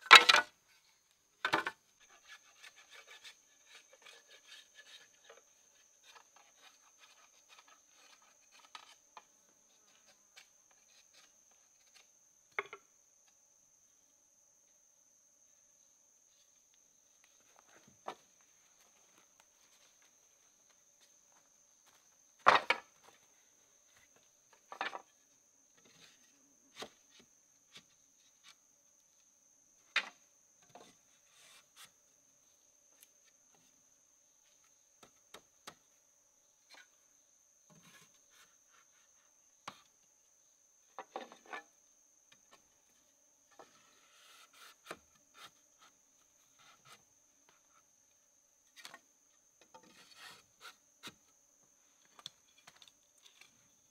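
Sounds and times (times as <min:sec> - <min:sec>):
wood rubbing and scraping: 0:01.5 - 0:12.0, 0:43.5 - 0:47.8, 0:49.6 - 0:51.2.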